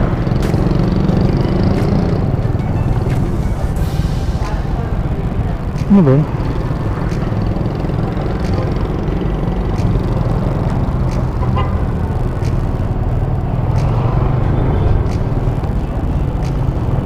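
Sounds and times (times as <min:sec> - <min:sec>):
motorcycle engine running: 0:00.0 - 0:17.0
road noise: 0:00.0 - 0:17.0
faint sharp ticks: 0:13.7 - 0:14.4.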